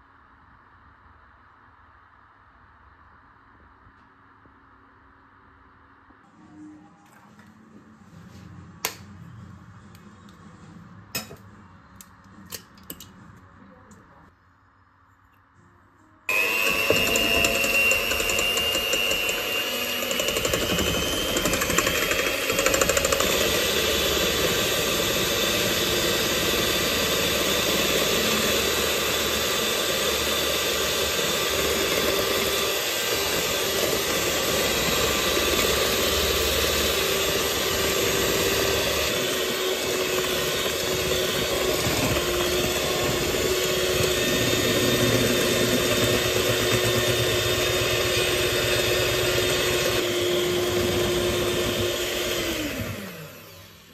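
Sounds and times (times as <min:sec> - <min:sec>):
electric hand mixer whisking: 0:16.3 - 0:53.9.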